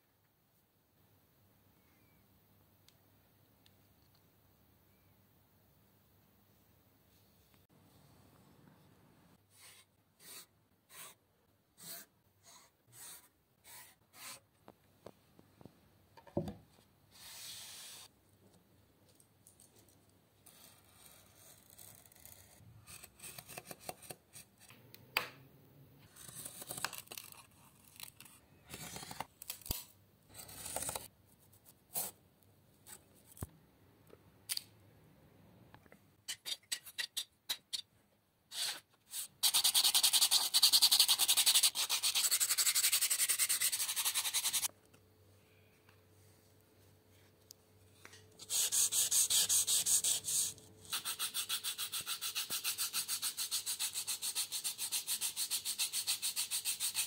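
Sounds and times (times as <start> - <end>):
sandpaper rubbing wood: 38.5 - 44.7, 48.4 - 57.0.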